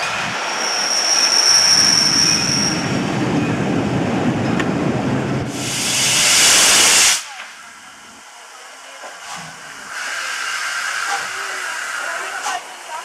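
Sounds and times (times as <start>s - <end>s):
train wheel squeal: 0.0s - 2.9s
steam hissing: 0.0s - 3.0s, 5.5s - 13.0s
low rumble of wheels: 1.6s - 5.5s.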